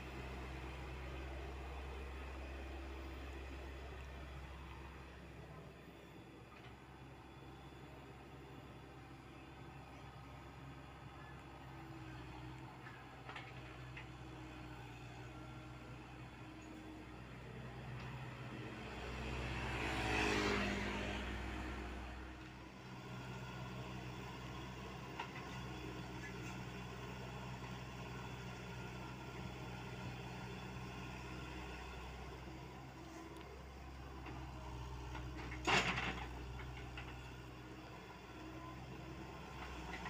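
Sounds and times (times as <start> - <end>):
diesel engine running: 0.0 - 40.0
road vehicle passing: 7.4 - 40.0.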